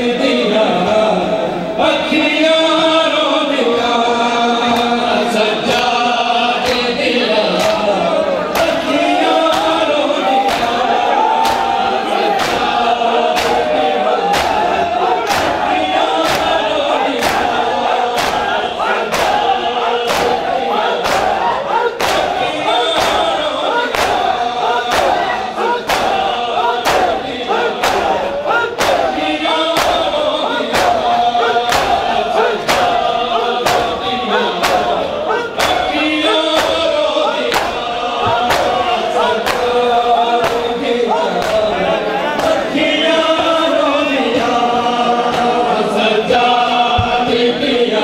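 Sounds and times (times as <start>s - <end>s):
crowd of men chanting: 0.0s - 48.0s
hands slapping bare chests: 7.6s - 7.8s, 9.5s - 9.8s, 10.4s - 10.8s, 11.4s - 35.0s, 35.6s - 39.8s, 40.4s - 40.7s.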